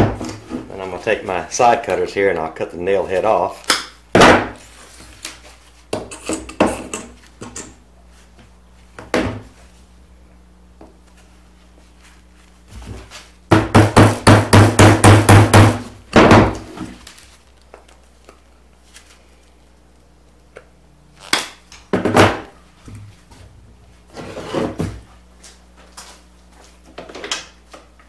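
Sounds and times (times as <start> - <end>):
hammer blows on nails: 13.5 - 16.4.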